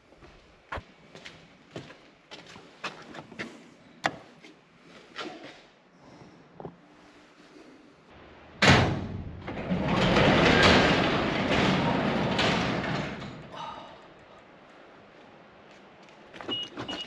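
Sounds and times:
garage door clunk: 8.5s - 13.5s
garage door panels rattling: 8.6s - 13.5s.

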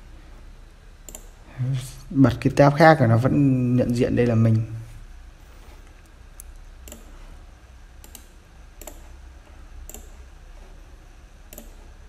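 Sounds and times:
faint low steady hum: 0.0s - 12.0s
computer mouse and keyboard clicks: 1.0s - 1.4s, 5.8s - 7.2s, 8.0s - 9.2s, 9.8s - 10.7s, 11.5s - 12.0s.

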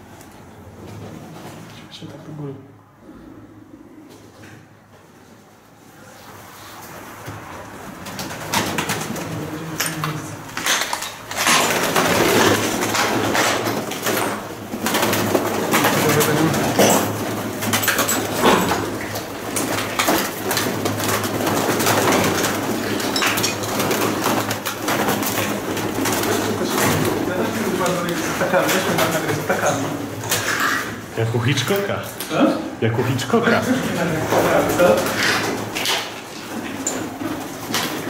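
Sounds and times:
pigeons cooing: 3.0s - 4.7s.

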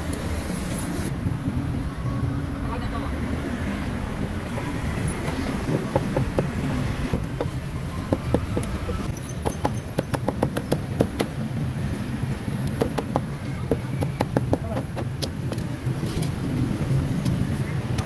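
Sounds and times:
street traffic rumble: 0.0s - 18.0s
cleaver chopping meat on wood: 5.7s - 11.3s.

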